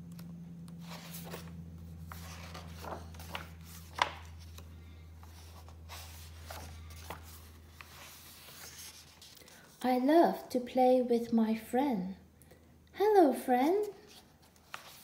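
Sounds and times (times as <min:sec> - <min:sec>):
faint low hum: 0:00.0 - 0:15.0
paper pages rustling: 0:00.1 - 0:09.8, 0:14.0 - 0:15.0.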